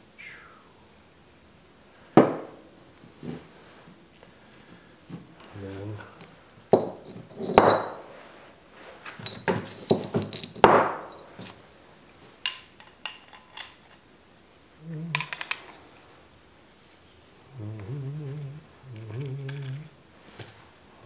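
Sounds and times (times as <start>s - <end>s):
metal rocker arms clinking: 6.1s - 8.1s, 9.0s - 11.6s.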